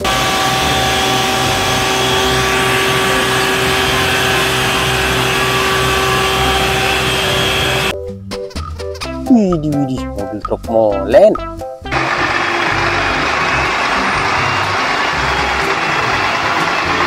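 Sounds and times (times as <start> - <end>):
pump mechanical hum: 0.0 - 7.9, 11.9 - 17.0.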